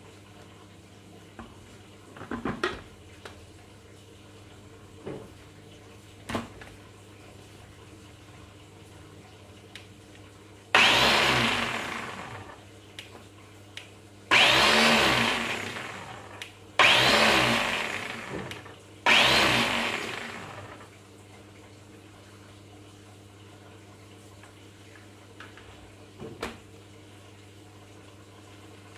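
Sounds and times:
blender motor whining: 10.7 - 12.6, 14.3 - 20.9.

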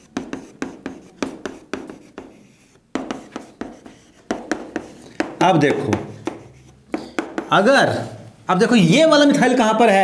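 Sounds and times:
writing taps on a board: 0.0 - 7.7.

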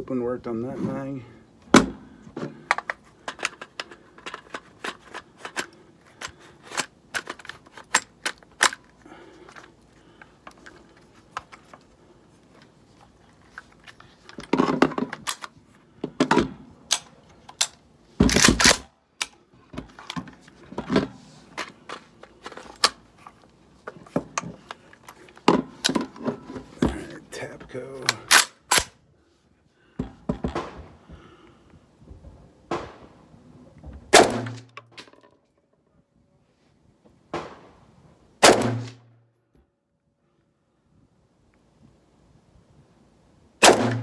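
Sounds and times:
rifle metallic clicks and clacks: 2.7 - 8.9, 13.9 - 15.6, 16.9 - 19.4.

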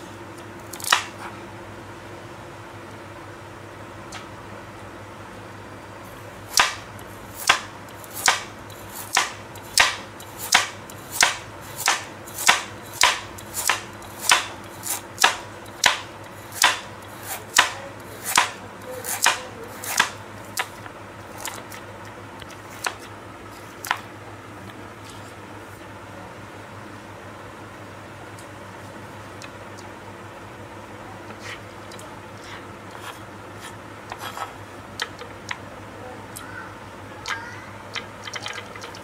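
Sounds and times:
cleaver chopping carrot on board: 0.7 - 1.3, 6.5 - 20.8.

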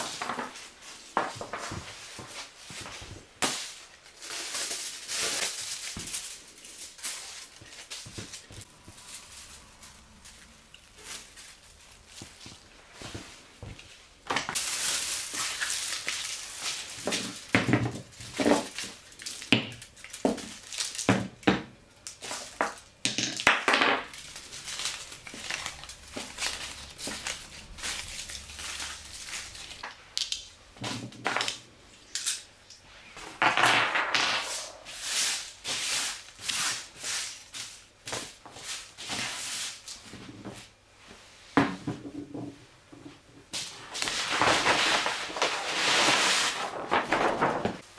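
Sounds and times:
plastic film and foil crinkling: 0.0 - 32.3, 43.6 - 47.9.

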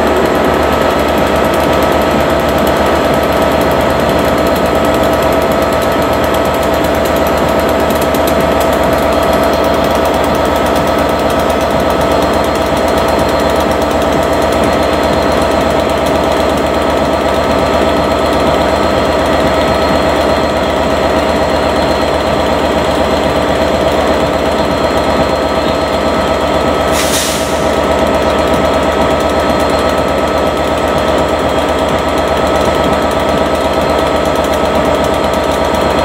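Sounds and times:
diesel train engine throbbing: 0.0 - 36.0
short hiss: 26.9 - 27.6.

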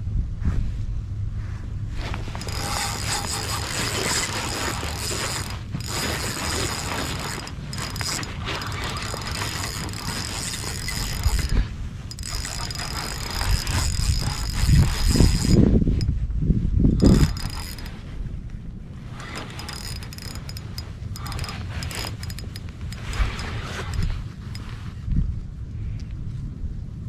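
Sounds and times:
wind rumble on microphone: 0.0 - 27.0
fishing reel drag clicking: 2.0 - 16.1, 17.0 - 18.1, 19.1 - 24.8.

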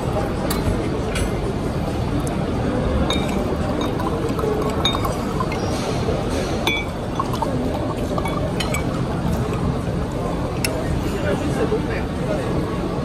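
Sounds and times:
busy room background: 0.0 - 13.0
water pouring into glass: 3.0 - 10.9
glass clinking on glass: 3.1 - 9.6.

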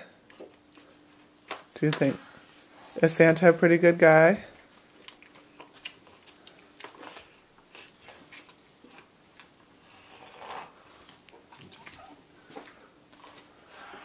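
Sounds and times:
faint clicks and rustles: 4.4 - 9.6, 10.9 - 13.6.

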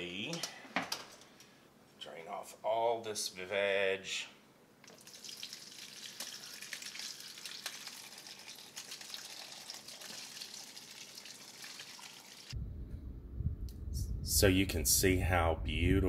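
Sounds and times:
liquid pouring into a pot: 4.9 - 12.6.

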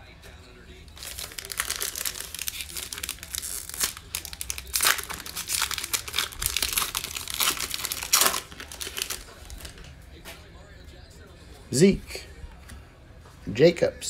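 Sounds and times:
foil wrapper tearing and crinkling: 1.0 - 9.9.

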